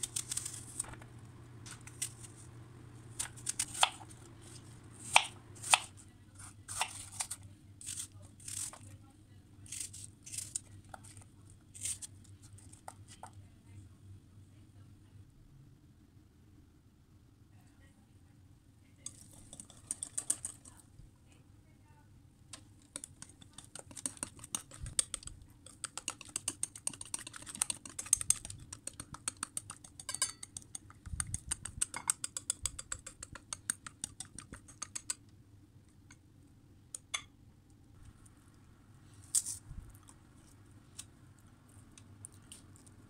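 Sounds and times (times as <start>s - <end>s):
baking paper crinkling: 0.0s - 2.5s.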